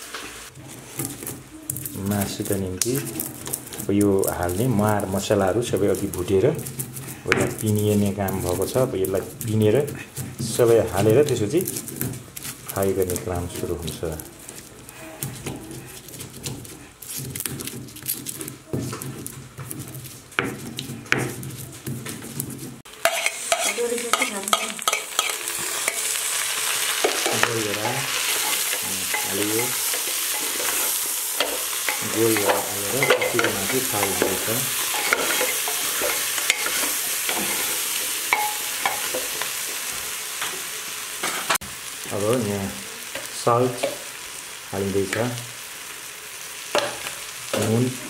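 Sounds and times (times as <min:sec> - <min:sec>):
meat sizzling in a pot: 0:00.0 - 0:48.0
wooden spoon stirring: 0:00.3 - 0:40.8
pestle grinding in stone mortar: 0:00.6 - 0:23.7, 0:24.5 - 0:39.6.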